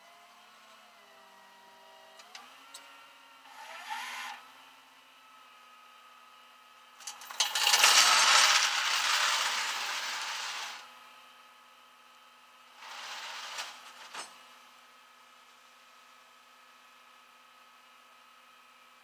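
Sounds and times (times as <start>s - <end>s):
chain rattling: 7.1s - 10.3s.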